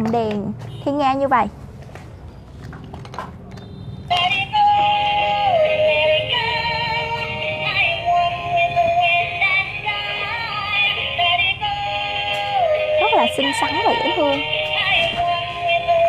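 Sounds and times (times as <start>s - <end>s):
toy electronic melody with singing: 4.1s - 16.0s.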